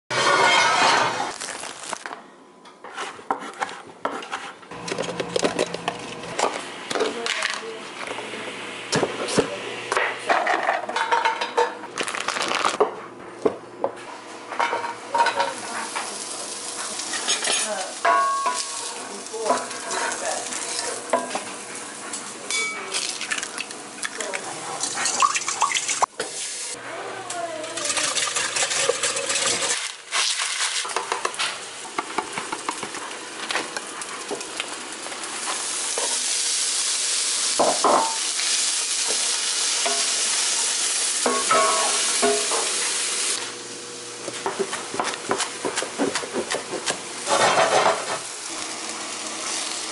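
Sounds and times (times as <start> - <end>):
food sizzling in a skillet: 15.1 - 22.6, 24.9 - 26.8, 33.2 - 43.9, 47.0 - 49.9.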